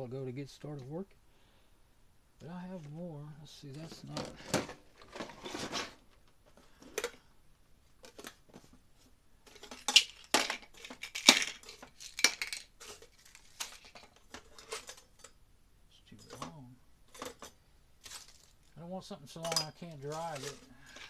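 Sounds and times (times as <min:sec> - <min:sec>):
metal screws clinking and rattling: 0:09.5 - 0:15.4, 0:19.4 - 0:21.0.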